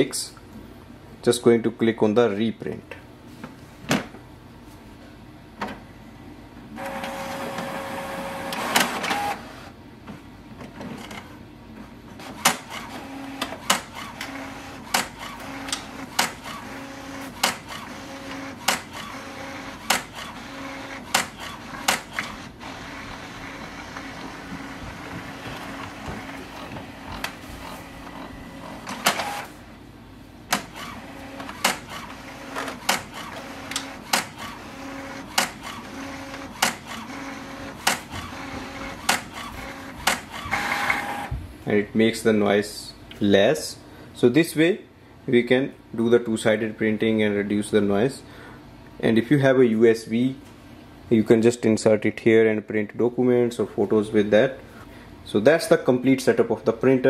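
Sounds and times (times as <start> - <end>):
printer mechanical hum: 6.6 - 41.6
printer sharp clicks: 6.8 - 9.4, 12.2 - 27.4, 28.6 - 29.5, 30.5 - 41.3
printer whirring: 6.8 - 9.8, 12.1 - 29.6, 30.5 - 41.4.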